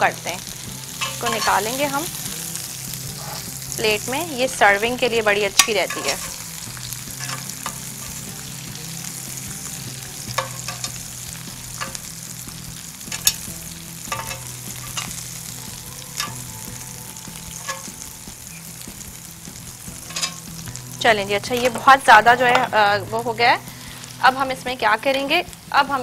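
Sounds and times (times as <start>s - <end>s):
food sizzling in a pan: 0.0s - 26.0s
spoon stirring: 1.0s - 1.8s, 5.5s - 6.5s, 7.1s - 8.3s, 10.3s - 11.1s, 11.7s - 12.1s, 13.1s - 13.5s, 14.1s - 15.2s, 17.5s - 18.0s, 20.0s - 20.5s
utensil clinking on pan: 1.0s - 1.8s, 5.5s - 6.5s, 7.2s - 8.3s, 10.2s - 11.1s, 11.7s - 12.1s, 13.1s - 13.5s, 14.1s - 15.2s, 16.1s - 16.6s, 17.5s - 18.0s, 20.0s - 20.5s.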